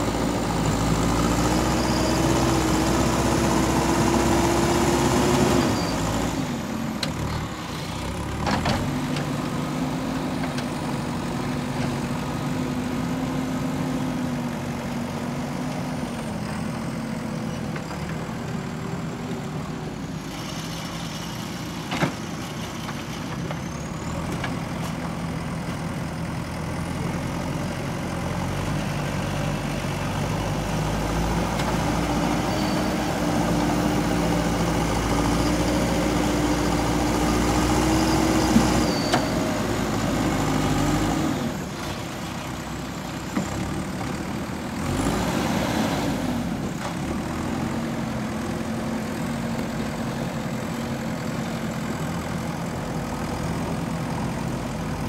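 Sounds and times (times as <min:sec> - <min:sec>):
diesel engine running: 0:00.0 - 0:55.0.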